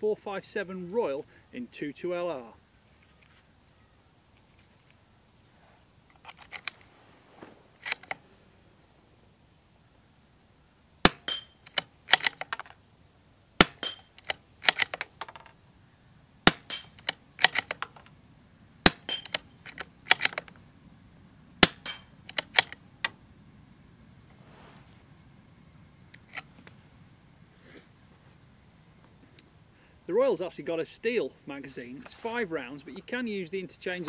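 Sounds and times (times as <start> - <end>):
rifle bolt clicks: 6.1 - 6.9, 7.8 - 8.2, 11.0 - 12.7, 13.6 - 15.6, 16.5 - 18.1, 18.8 - 20.6, 21.6 - 23.2
rifle shots: 11.0 - 11.5, 13.6 - 15.0, 16.4 - 17.9, 18.8 - 20.5, 21.6 - 22.8.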